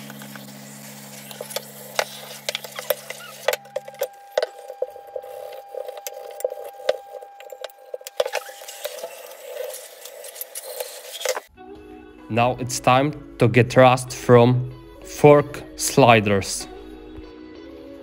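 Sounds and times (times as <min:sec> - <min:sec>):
low steady hum: 0:00.0 - 0:10.6
thin high steady tone: 0:00.2 - 0:11.5.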